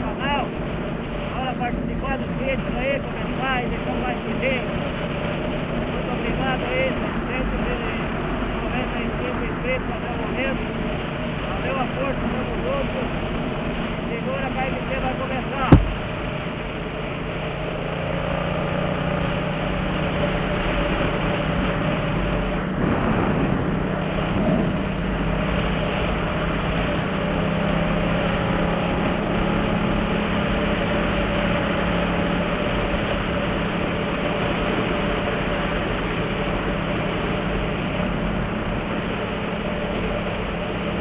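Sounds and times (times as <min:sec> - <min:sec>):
motorcycle engine cruising: 0:10.4 - 0:41.0.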